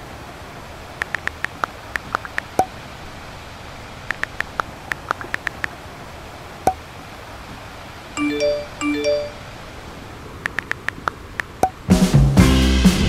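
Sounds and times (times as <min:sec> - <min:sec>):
phone keyboard tap clicks: 0:04.1 - 0:05.7, 0:10.4 - 0:11.8
message sent pop with tone: 0:08.2 - 0:09.4.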